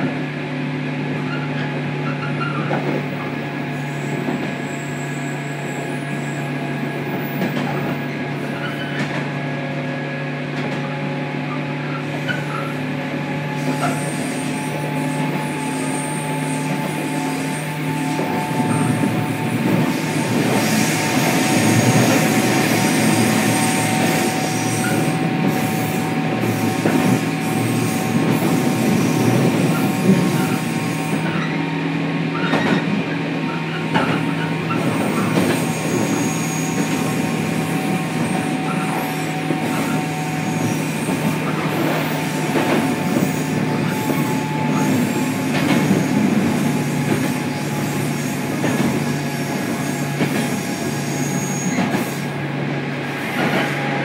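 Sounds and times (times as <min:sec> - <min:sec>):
train motor hum: 0:10.3 - 0:54.0
wheel and track noise: 0:32.3 - 0:52.4.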